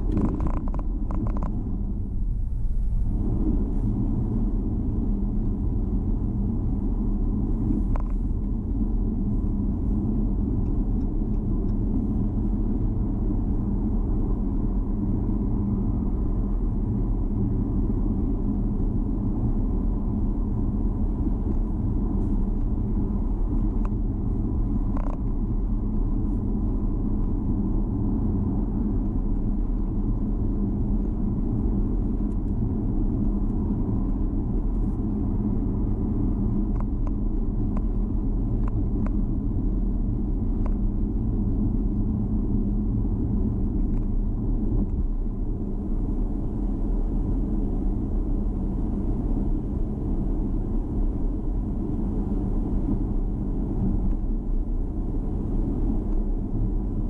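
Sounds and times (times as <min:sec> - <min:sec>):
car engine rumble: 0:00.0 - 0:57.0
tyre road noise: 0:00.0 - 0:57.0.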